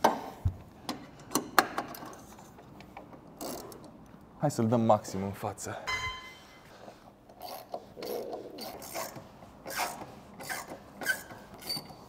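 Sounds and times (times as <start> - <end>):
ringing metal clink: 5.9 - 6.6.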